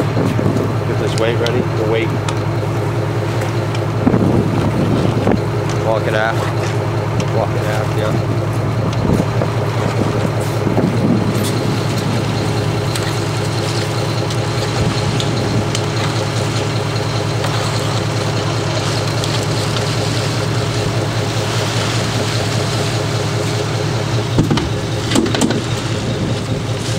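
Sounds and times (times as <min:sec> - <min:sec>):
boat engine running: 0:00.0 - 0:26.9
wind and water hiss: 0:08.5 - 0:26.9.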